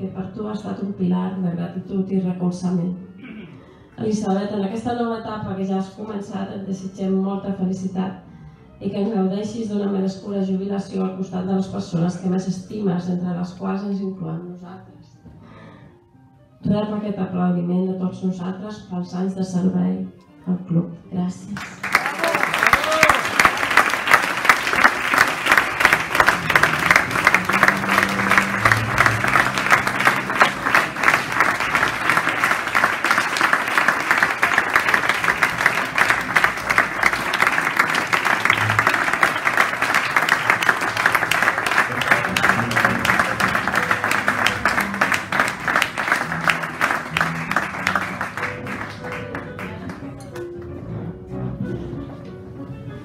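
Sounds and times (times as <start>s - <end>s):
audience applauding: 21.6s - 50.2s.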